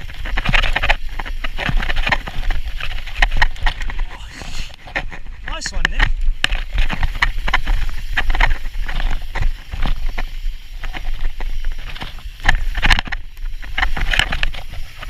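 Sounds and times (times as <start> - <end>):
bike clattering over bumps: 0.0 - 4.0, 4.8 - 15.0
bike tyres rolling on dirt: 0.0 - 15.0.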